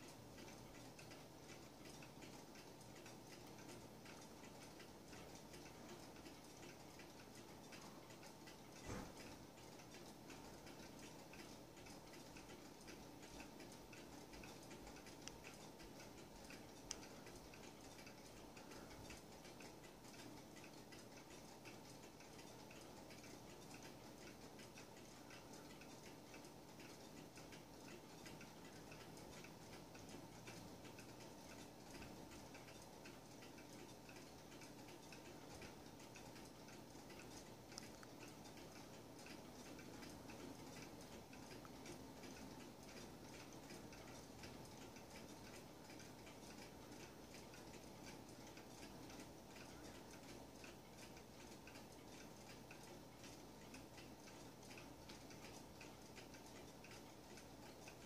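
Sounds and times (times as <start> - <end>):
clock ticking: 0.0 - 58.0.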